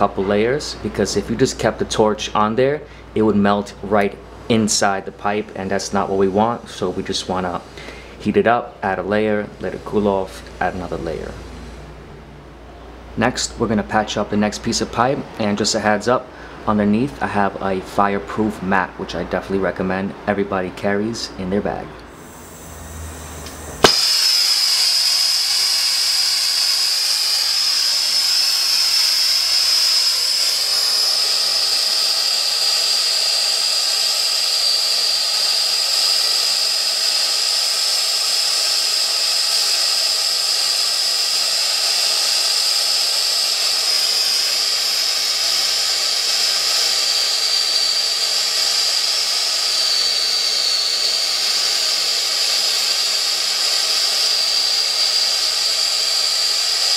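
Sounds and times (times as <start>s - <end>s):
gas torch flame hissing: 22.1s - 56.9s
torch ignition click: 23.4s - 56.9s.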